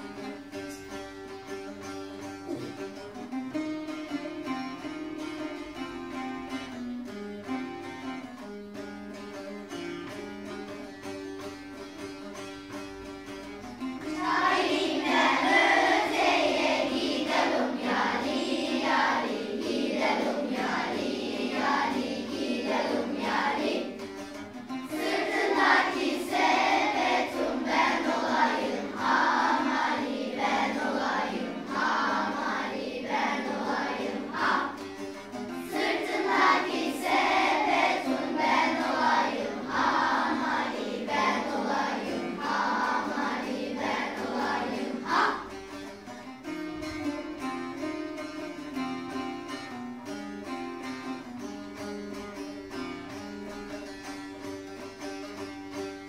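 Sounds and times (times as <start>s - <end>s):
plucked-string folk melody: 0.0s - 56.0s
children singing in unison: 14.1s - 24.1s, 24.9s - 35.0s, 35.6s - 45.5s.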